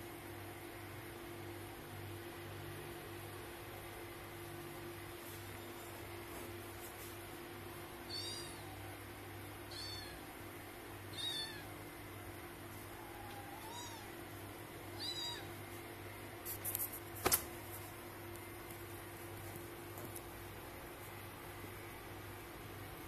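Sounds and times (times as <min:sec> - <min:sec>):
cat mewing: 0:15.0 - 0:15.6.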